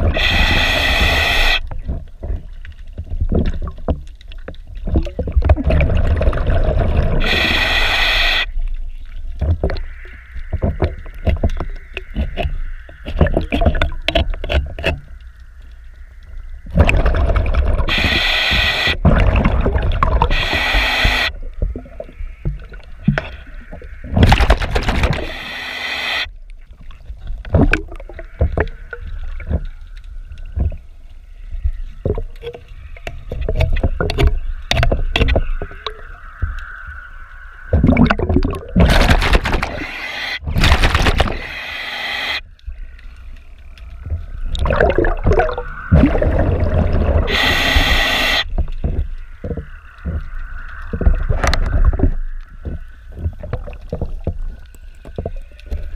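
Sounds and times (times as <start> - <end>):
regulator hissing inhalations: 0.0 - 1.6, 7.2 - 8.5, 17.9 - 19.0, 20.2 - 21.3, 25.2 - 26.3, 39.7 - 40.4, 41.4 - 42.4, 47.3 - 48.5
gurgling exhaled bubbles: 0.0 - 2.2, 4.8 - 8.5, 16.6 - 25.6, 27.4 - 29.8, 37.7 - 41.8, 44.0 - 55.9.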